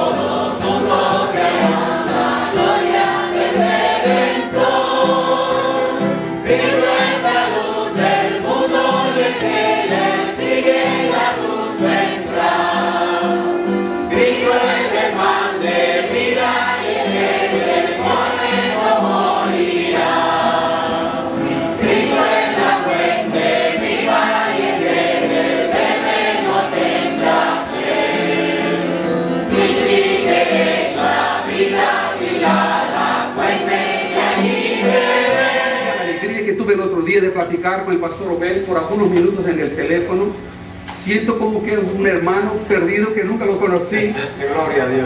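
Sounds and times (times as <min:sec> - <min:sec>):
congregation singing: 0:00.0 - 0:37.0.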